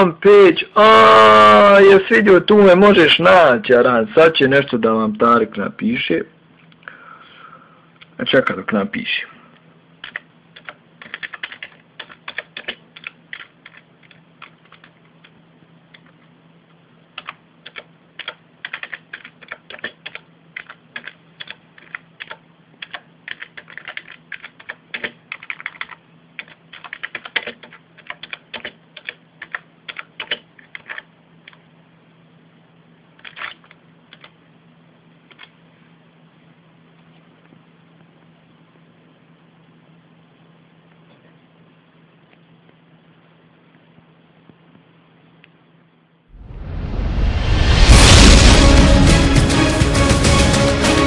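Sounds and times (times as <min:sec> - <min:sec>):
computer keyboard typing: 0:10.0 - 0:16.2, 0:17.1 - 0:31.6, 0:33.2 - 0:34.4.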